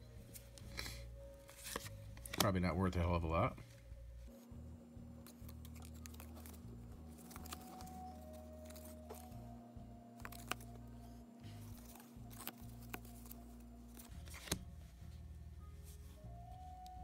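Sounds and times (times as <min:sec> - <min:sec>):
cards sliding: 0:00.3 - 0:02.5, 0:05.2 - 0:09.4, 0:10.2 - 0:14.7
card clicks: 0:00.4 - 0:02.5, 0:05.2 - 0:09.4, 0:10.2 - 0:10.8, 0:11.6 - 0:14.7.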